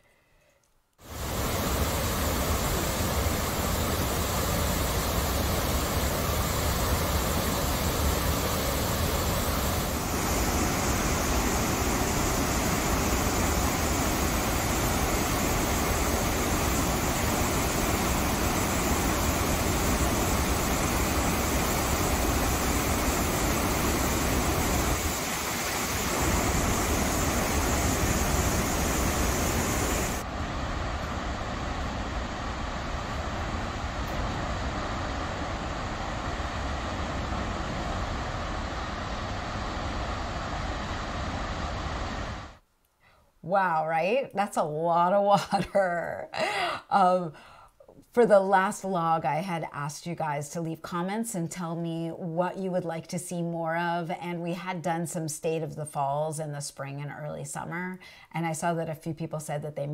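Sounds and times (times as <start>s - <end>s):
waterfall rushing and crashing: 1.0s - 42.6s.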